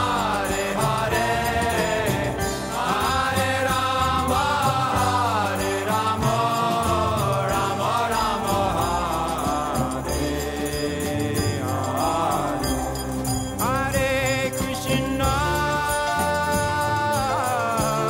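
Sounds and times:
musical accompaniment: 0:00.0 - 0:18.0
small hand bell ringing: 0:00.0 - 0:18.0.

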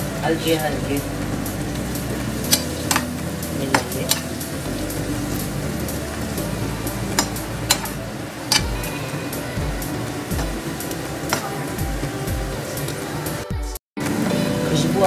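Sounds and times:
vegetables sizzling in a frying pan: 0:00.0 - 0:13.4.

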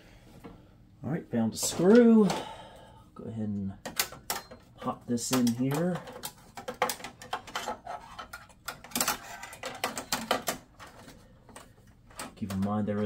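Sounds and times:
video card rattling in metal case: 0:05.2 - 0:13.0.

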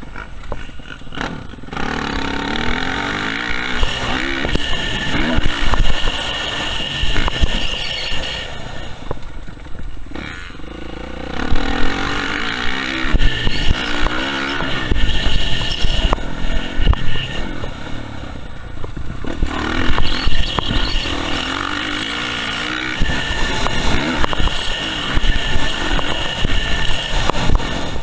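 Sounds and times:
motorcycle engine revving: 0:00.0 - 0:28.0.

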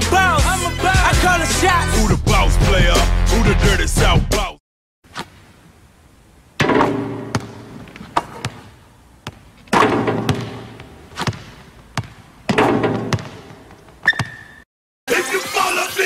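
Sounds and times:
basketballs bouncing on wooden floor: 0:06.9 - 0:08.7, 0:09.3 - 0:14.4.

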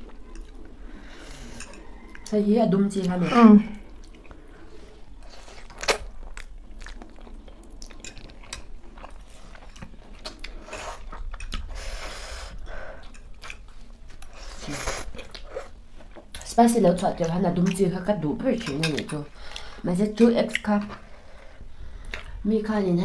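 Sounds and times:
people slurping and chewing noodles: 0:00.0 - 0:02.3, 0:02.9 - 0:16.5.

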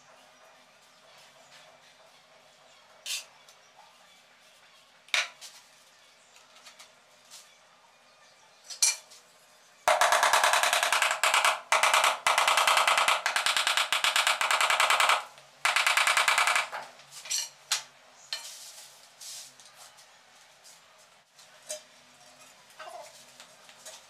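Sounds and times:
hammer tapping ceramic tile: 0:09.9 - 0:16.7.

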